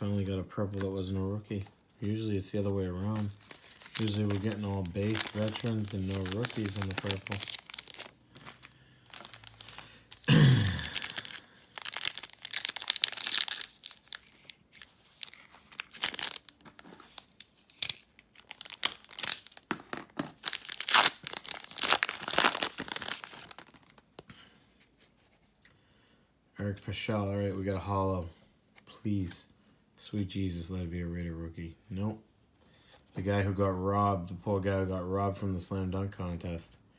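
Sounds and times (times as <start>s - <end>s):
foil wrapper tearing and crinkling: 3.1s - 24.0s.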